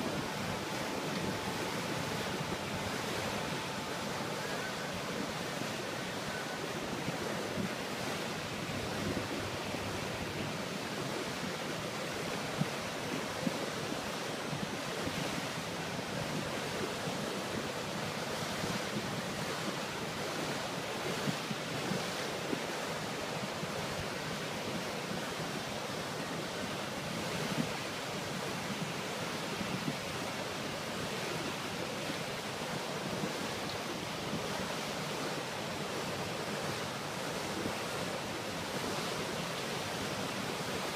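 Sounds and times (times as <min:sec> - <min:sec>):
wind buffeting microphone: 0:00.0 - 0:22.9
water rushing: 0:00.0 - 0:40.9.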